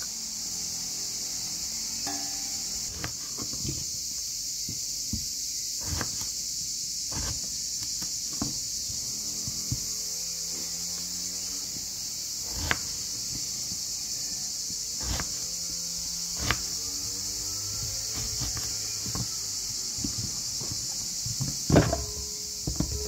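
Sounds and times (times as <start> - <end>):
steady high hiss: 0.0 - 23.0.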